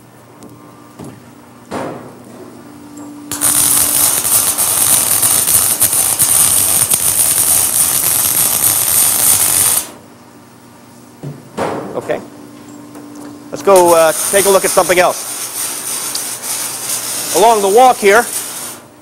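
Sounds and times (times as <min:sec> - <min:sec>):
arc welding crackling sizzle: 0:03.3 - 0:10.1, 0:13.5 - 0:19.0.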